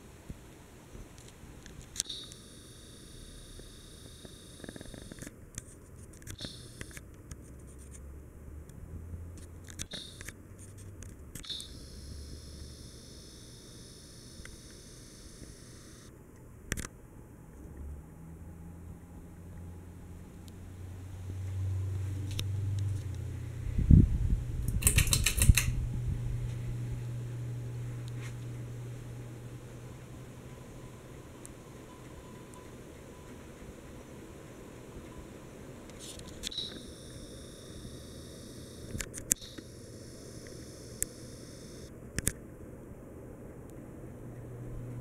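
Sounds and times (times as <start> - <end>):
ceiling fan humming: 0.0 - 45.0
small clicks: 1.2 - 8.0, 9.4 - 12.4, 13.2 - 16.1, 24.7 - 25.8, 35.9 - 42.4.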